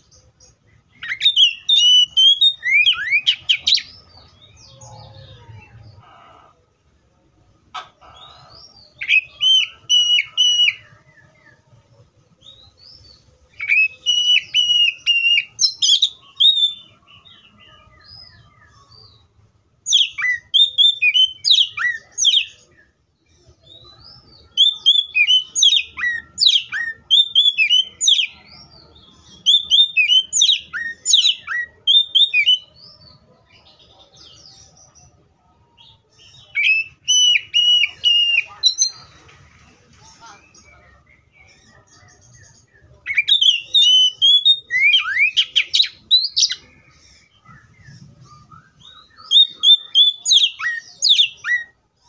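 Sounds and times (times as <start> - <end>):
bird singing whistled notes: 0.0 - 5.9, 8.2 - 11.6, 12.4 - 35.0, 35.8 - 39.1, 40.4 - 52.0.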